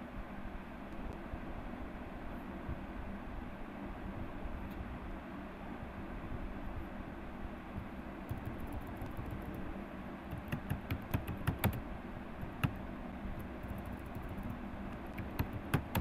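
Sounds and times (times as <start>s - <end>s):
steady low hum: 0.0s - 16.0s
computer keyboard typing: 8.3s - 9.6s, 10.3s - 11.8s, 13.4s - 16.0s.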